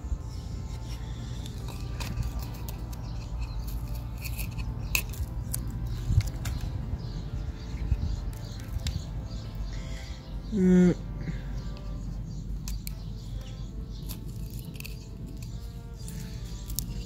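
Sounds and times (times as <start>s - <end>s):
low steady rumble: 0.0s - 17.0s
masking tape peeling crackle: 0.3s - 6.8s, 12.6s - 17.0s.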